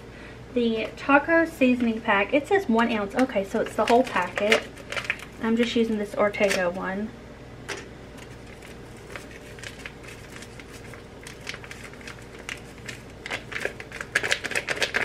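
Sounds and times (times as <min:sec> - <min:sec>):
plastic packet crinkling: 0:03.6 - 0:05.7, 0:08.2 - 0:15.0.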